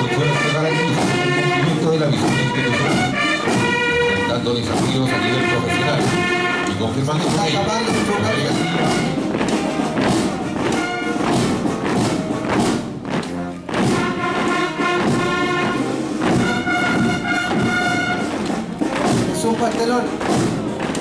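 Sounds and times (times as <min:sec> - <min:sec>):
brass band playing a march: 0:00.0 - 0:21.0
boots marching on pavement: 0:00.8 - 0:21.0.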